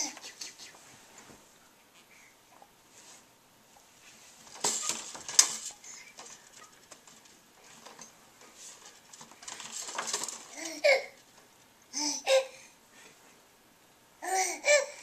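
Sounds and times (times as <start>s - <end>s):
plastic toys clicking and rattling: 4.4s - 11.4s.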